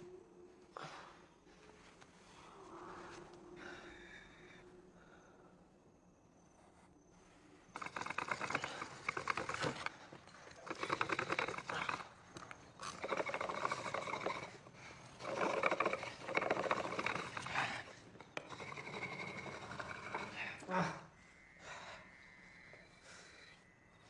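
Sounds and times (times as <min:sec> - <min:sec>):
wolf growling: 0:07.7 - 0:21.2.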